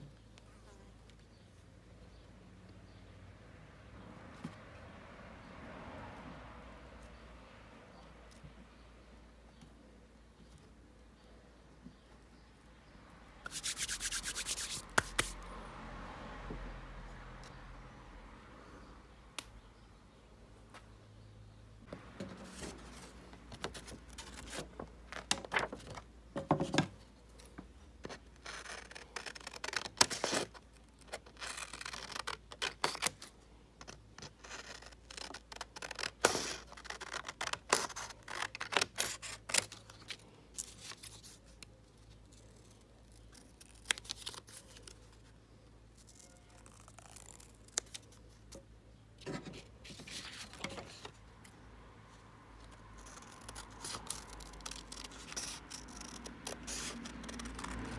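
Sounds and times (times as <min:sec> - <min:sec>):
card sheet rustling: 0:13.5 - 0:15.4, 0:22.2 - 0:26.0.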